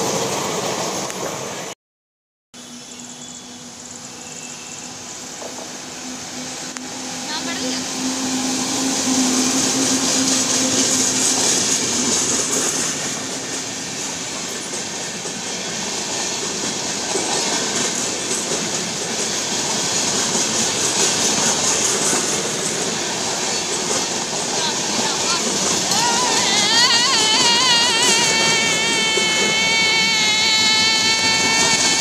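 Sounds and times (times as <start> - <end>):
train wheels rushing on rail: 0.0 - 1.7, 2.6 - 32.0
electric locomotive hum: 2.6 - 32.0
clickety-clack of coaches: 10.2 - 26.4.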